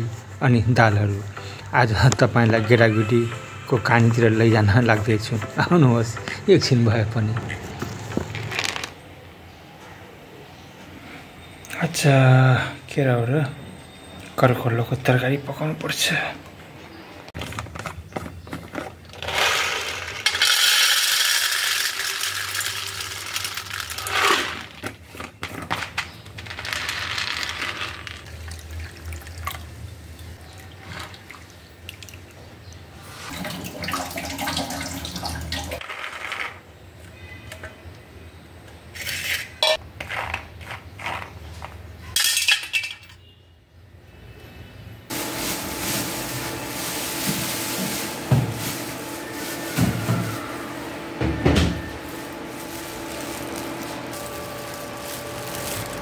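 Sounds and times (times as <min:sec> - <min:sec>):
peas and steel dishes clinking: 0:17.4 - 0:28.3, 0:39.0 - 0:43.3
water pouring and splashing: 0:33.2 - 0:35.8.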